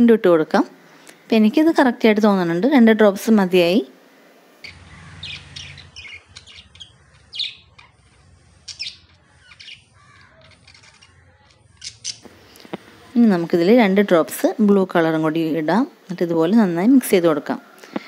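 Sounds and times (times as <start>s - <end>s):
bird chirping: 4.6s - 12.6s.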